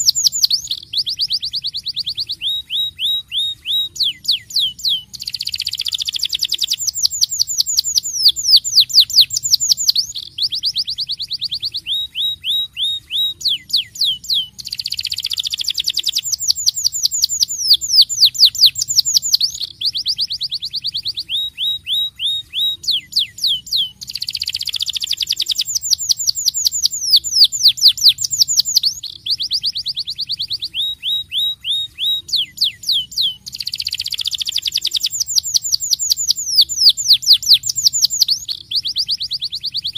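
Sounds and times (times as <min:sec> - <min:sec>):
canary singing trills: 0:00.0 - 0:39.9.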